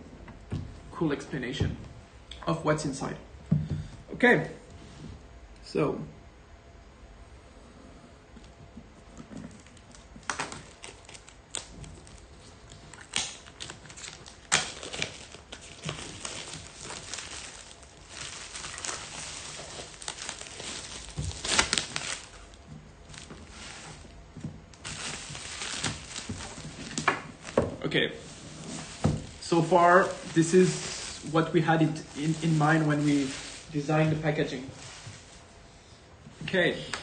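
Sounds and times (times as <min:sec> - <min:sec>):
plastic shrink-wrap crinkling: 0:09.2 - 0:35.4.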